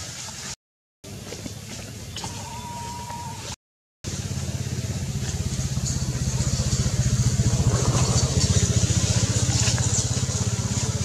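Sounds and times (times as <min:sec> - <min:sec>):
engine idling: 0:04.1 - 0:11.0.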